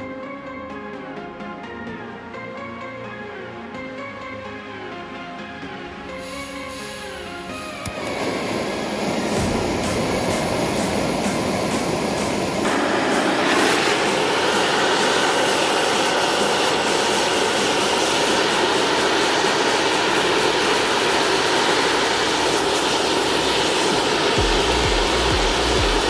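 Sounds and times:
gas torch flame hissing: 6.1s - 26.0s.

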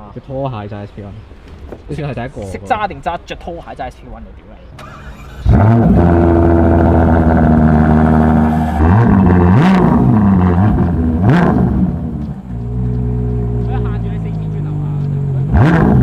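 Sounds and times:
car engine starting and idling: 4.6s - 16.0s
engine revving: 4.8s - 16.0s.

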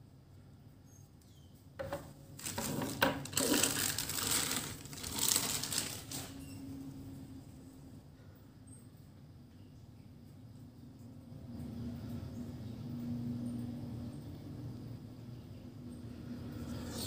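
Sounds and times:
plastic bag crinkling: 2.4s - 6.6s.

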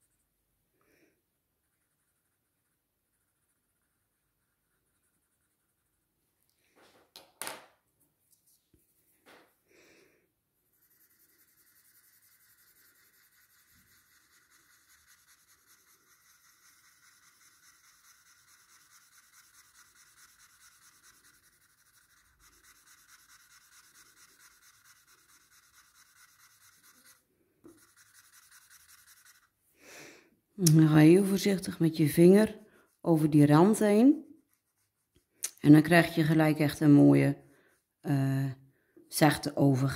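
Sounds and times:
pencil scratching on paper: 1.6s - 6.1s, 10.6s - 29.6s, 31.2s - 37.1s.

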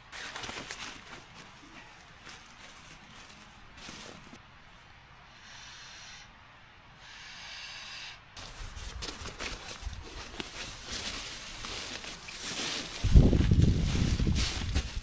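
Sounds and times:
pad rustling: 0.2s - 4.4s, 8.4s - 15.0s.

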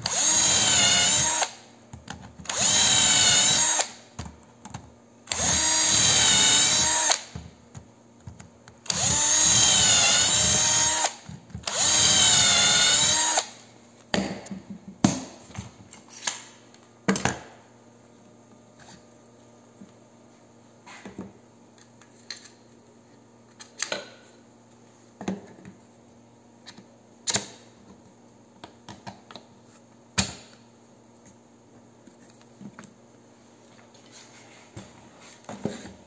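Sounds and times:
cordless drill boring holes: 0.0s - 1.6s, 2.5s - 4.0s, 5.3s - 7.3s, 8.9s - 13.6s.

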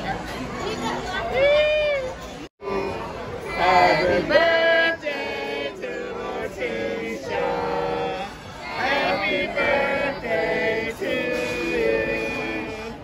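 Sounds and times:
group singing a celebration song: 3.4s - 13.0s.

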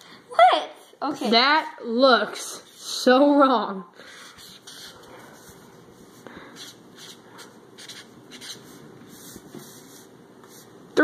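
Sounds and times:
marker scratching on paper: 2.6s - 2.9s, 4.2s - 5.5s, 6.6s - 10.7s.

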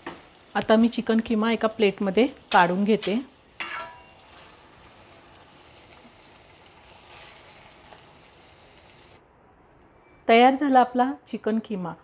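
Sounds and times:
faint sizzling in hot pan: 0.0s - 9.2s
steel spoon clinking on pan: 2.5s - 4.3s
spoon scraping pan: 2.5s - 4.6s, 6.9s - 8.0s.

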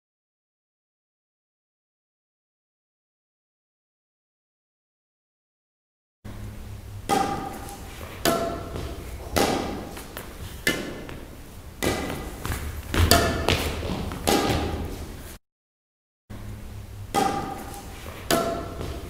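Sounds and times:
steady low hum: 6.3s - 15.4s, 16.3s - 19.0s
rackets hitting shuttlecock: 7.0s - 15.2s, 17.1s - 19.0s.

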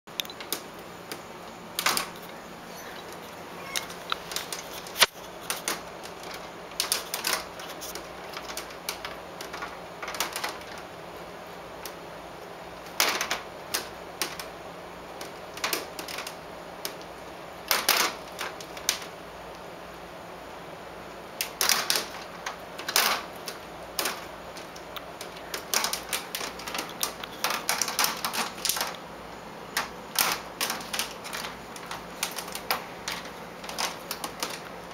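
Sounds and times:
cat claws scratching mesh screen: 0.4s - 10.9s, 15.2s - 19.2s, 21.4s - 29.0s, 29.7s - 34.9s.

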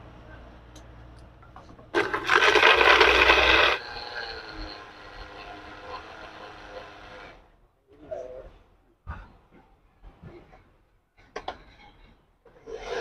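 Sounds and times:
electric blender running: 2.0s - 7.2s.

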